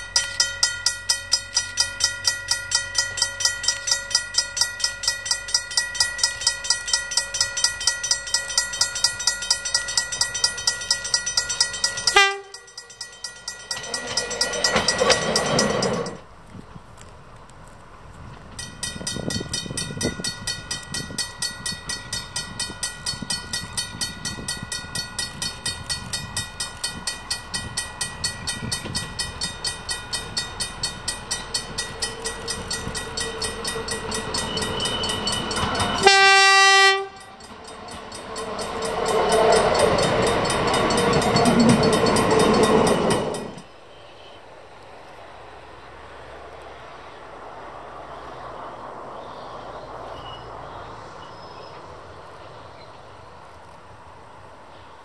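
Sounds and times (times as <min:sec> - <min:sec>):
regular ringing pulse: 0:00.0 - 0:16.2, 0:18.6 - 0:43.7
railcar rumbling past: 0:00.0 - 0:17.3, 0:17.9 - 0:55.0
railcar horn blast: 0:12.1 - 0:12.7, 0:34.2 - 0:37.4.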